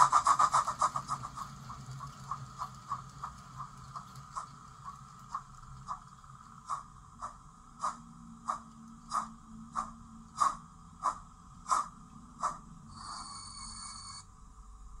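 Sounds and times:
model steam locomotive chuffing: 0:00.0 - 0:14.2
steam hiss with high tone: 0:12.9 - 0:14.2.

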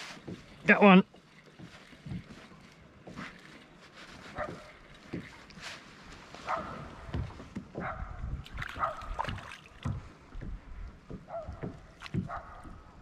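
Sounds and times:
dog barking: 0:04.4 - 0:04.7, 0:06.4 - 0:06.9, 0:07.8 - 0:08.2, 0:08.8 - 0:09.2, 0:11.3 - 0:12.7
thumps against kayak hull: 0:06.9 - 0:13.0
fish splashing at surface: 0:08.5 - 0:10.0.

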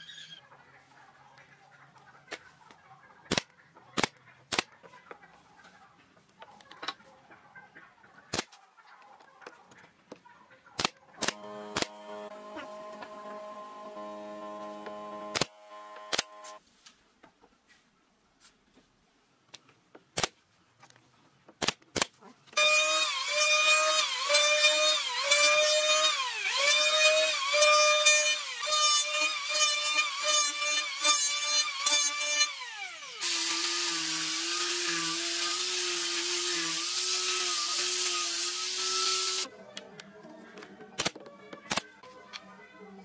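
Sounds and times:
electric hand planer cutting wood: 0:11.3 - 0:16.6, 0:22.6 - 0:39.5
angle grinder sanding: 0:22.6 - 0:39.5.

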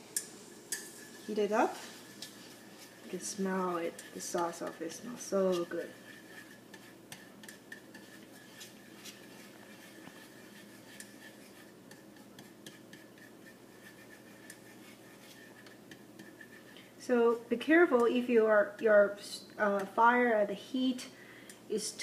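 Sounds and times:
spatula scraping a frying pan: 0:00.7 - 0:18.1.

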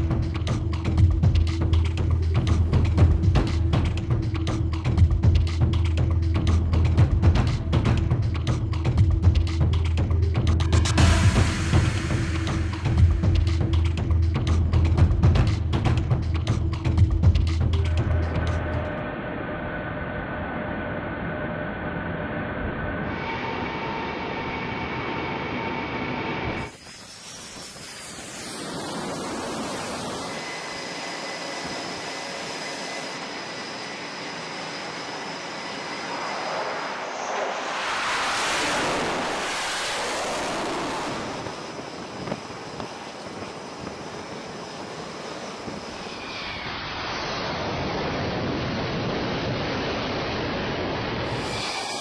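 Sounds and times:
jet aircraft noise: 0:00.0 - 0:52.0
rushing jet noise: 0:10.7 - 0:13.7, 0:25.2 - 0:52.0.

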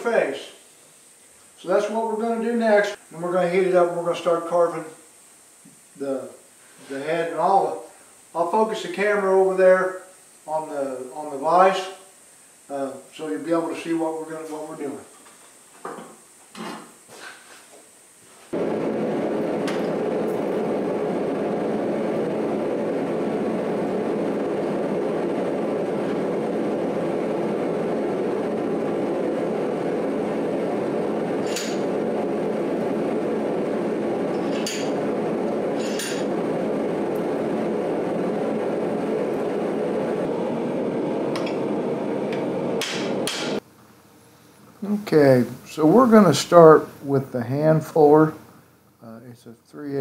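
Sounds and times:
forge roaring steadily: 0:00.0 - 0:15.1, 0:18.5 - 0:43.6, 0:44.2 - 0:48.4
metal tools clinking: 0:35.8 - 0:36.2.

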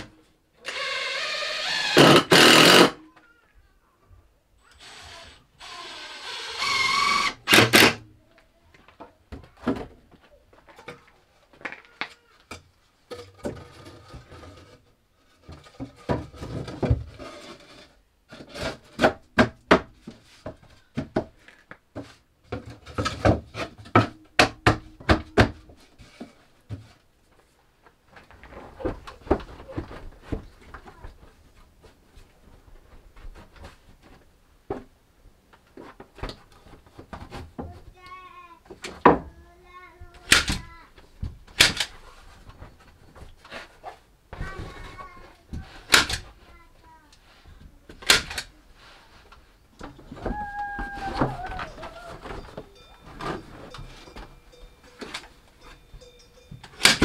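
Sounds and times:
high-pitched vocal sounds: 0:50.2 - 0:52.3.

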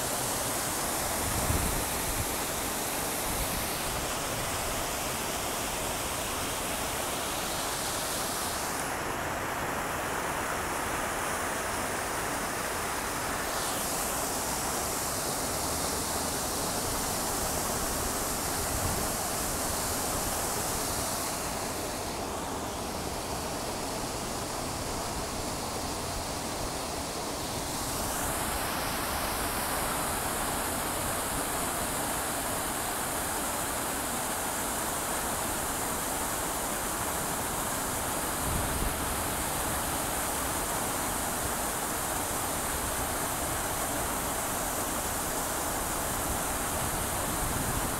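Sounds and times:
fountain water jets splashing: 0:00.0 - 0:47.9.

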